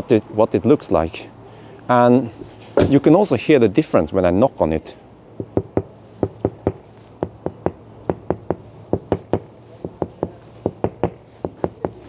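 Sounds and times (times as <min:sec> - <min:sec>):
knuckles knocking on glass: 0:05.4 - 0:12.0.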